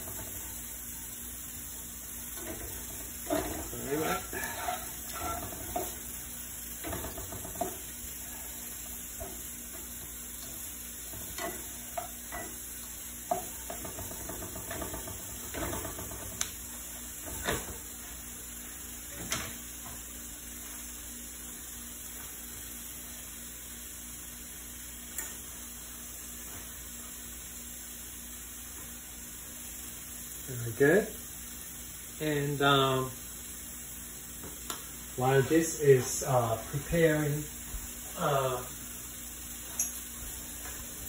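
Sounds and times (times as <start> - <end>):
shrimp sizzling in frying pan: 0.0 - 41.0
plastic spatulas scraping a pan: 3.2 - 6.0.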